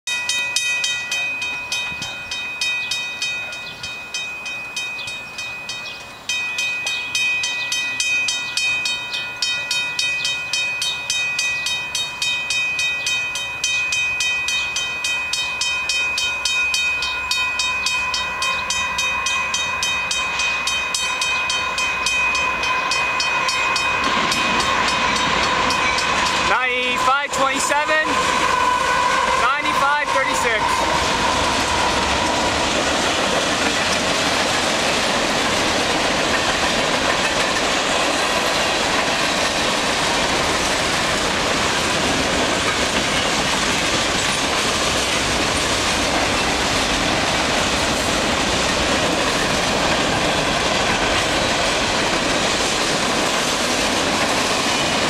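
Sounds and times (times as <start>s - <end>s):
level crossing warning bell: 0.1s - 32.5s
train rumble: 0.1s - 55.0s.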